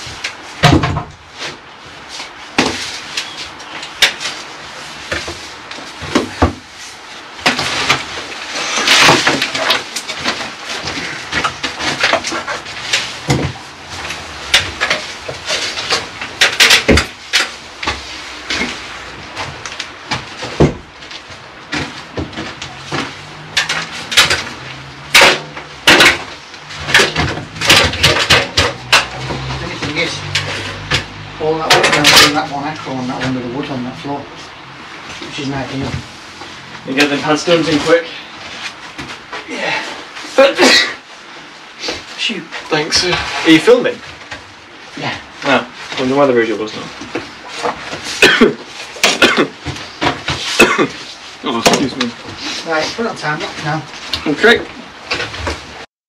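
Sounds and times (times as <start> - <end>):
building work knocks and clatter: 0.0 - 6.7, 7.4 - 33.4, 45.7 - 52.5, 53.3 - 55.9.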